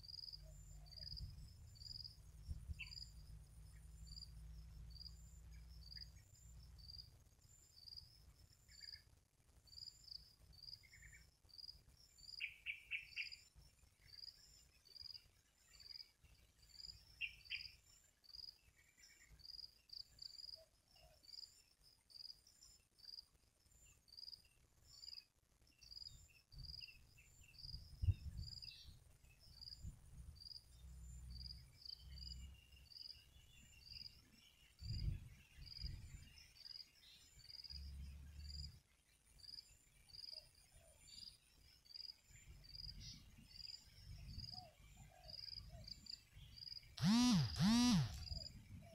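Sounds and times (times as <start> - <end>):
insects chirping: 0.0 - 9.0, 45.4 - 48.6.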